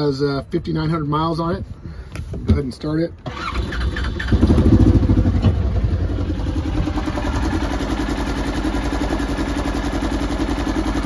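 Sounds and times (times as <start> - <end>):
engine idling: 3.3 - 11.0.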